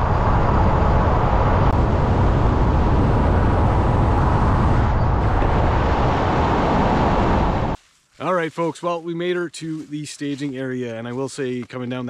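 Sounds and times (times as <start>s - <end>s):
wind rushing: 0.0s - 7.8s.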